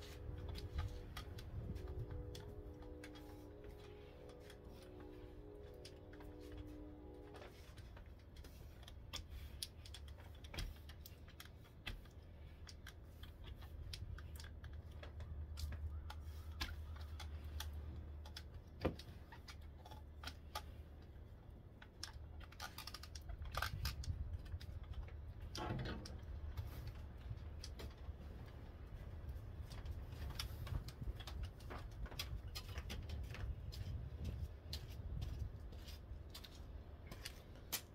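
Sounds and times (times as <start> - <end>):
low steady rumble: 0.0 - 37.9.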